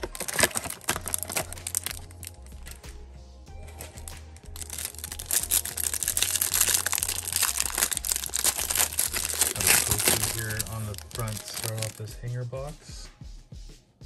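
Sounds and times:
plastic wrapper crinkling and tearing: 0.0s - 2.8s, 3.6s - 12.1s
background music with bass: 0.0s - 14.0s.

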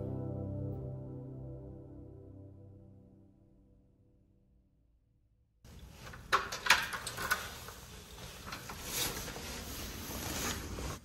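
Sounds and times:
rustling handling noise: 5.7s - 11.0s.

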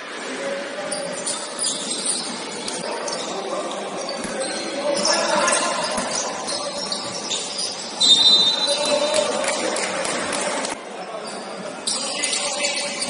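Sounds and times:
voices echoing in hall: 0.0s - 13.0s
shoe squeaks and knocks on court: 0.9s - 9.0s, 11.2s - 13.0s.

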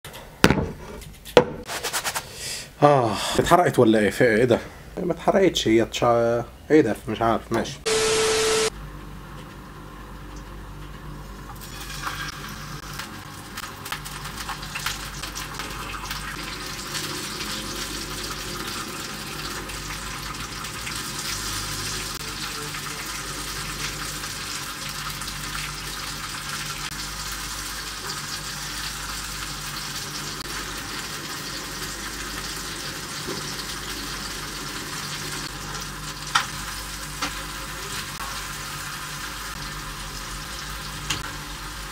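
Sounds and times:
tomato slices sizzling in oil: 9.5s - 41.9s.

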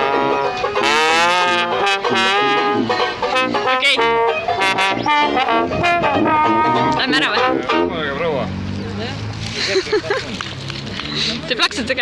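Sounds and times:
trombone melody with pitch slide: 0.0s - 8.4s
banjo plucked chords: 0.0s - 8.6s
tuba bass: 0.0s - 9.5s.

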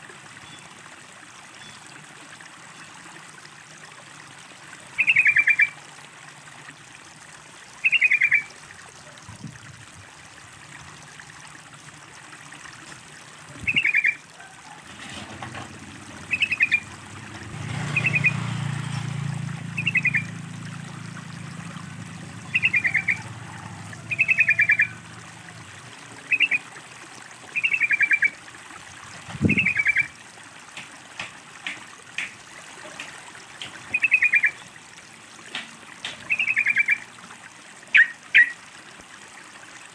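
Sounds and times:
water trickling: 0.0s - 39.9s
bird calling: 5.0s - 5.7s, 7.8s - 8.5s, 13.6s - 14.7s, 16.2s - 16.9s, 19.7s - 20.3s, 22.5s - 25.0s, 26.2s - 26.7s, 27.6s - 28.4s, 29.5s - 30.1s, 33.9s - 34.6s, 36.2s - 37.0s, 37.9s - 38.6s.

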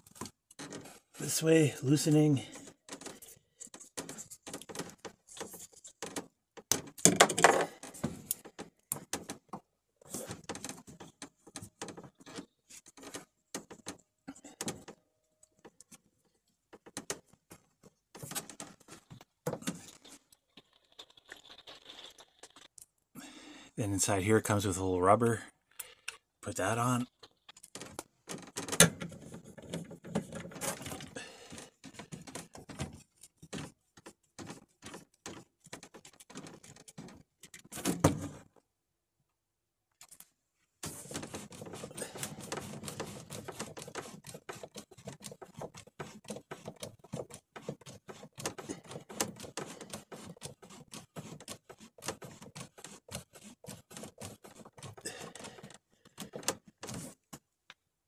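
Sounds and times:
plastic fittings clicking and scraping: 0.0s - 22.9s, 25.7s - 38.6s, 40.0s - 57.4s
glove rubbing: 40.8s - 57.4s.

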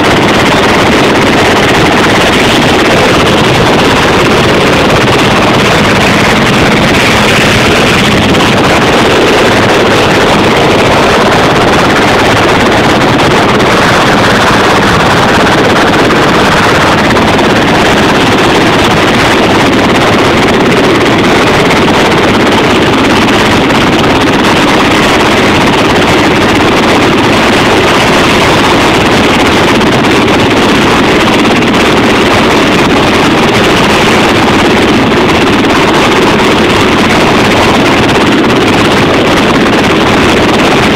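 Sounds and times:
heavy machinery roar: 0.0s - 40.9s
wind: 0.0s - 40.9s.

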